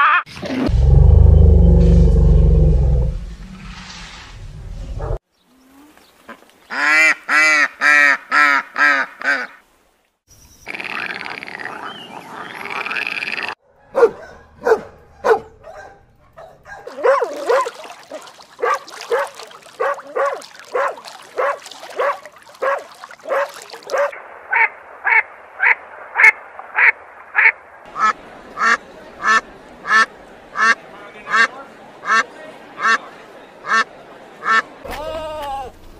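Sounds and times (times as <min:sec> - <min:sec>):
elephants rumbling: 0:00.3 - 0:05.2
ducks quacking: 0:17.0 - 0:34.8.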